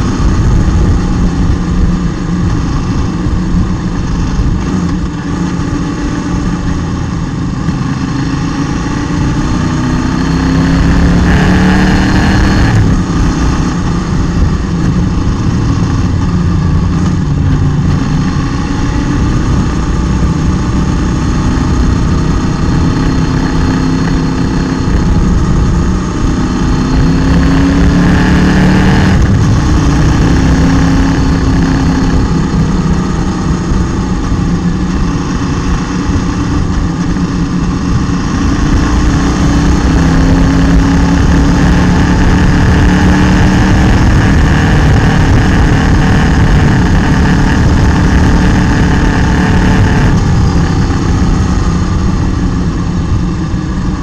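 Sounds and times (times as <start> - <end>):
motorcycle engine accelerating: 0.0 - 54.0
wind noise on microphone: 0.0 - 54.0.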